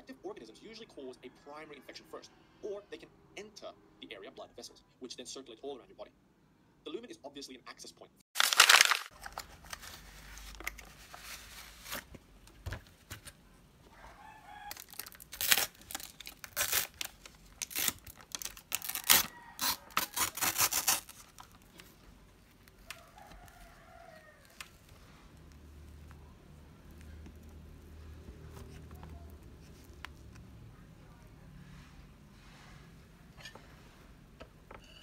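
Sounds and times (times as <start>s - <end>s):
plastic film crinkling: 8.4s - 13.3s, 14.7s - 30.5s.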